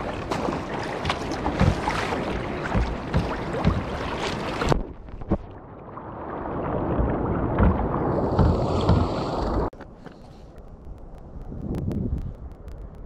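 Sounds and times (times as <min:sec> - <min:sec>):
sea water splashing: 0:00.0 - 0:09.7
wind on microphone: 0:11.2 - 0:13.0.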